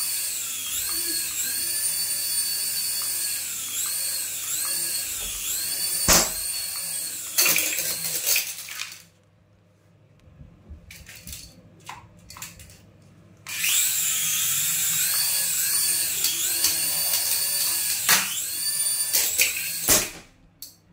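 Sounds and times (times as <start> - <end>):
toy helicopter motors whining: 0.0 - 8.2, 13.5 - 19.9.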